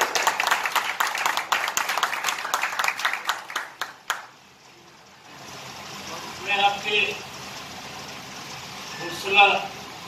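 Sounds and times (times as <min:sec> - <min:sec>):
audience applauding: 0:00.0 - 0:04.3.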